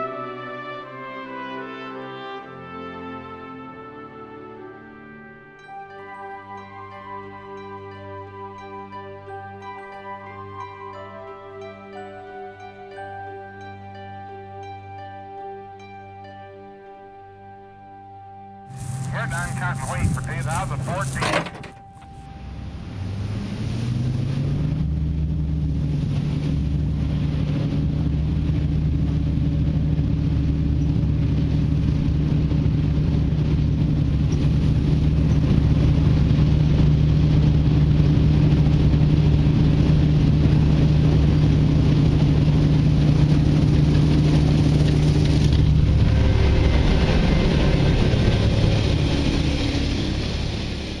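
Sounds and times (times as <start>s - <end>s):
vehicle engine running: 18.7s - 51.0s.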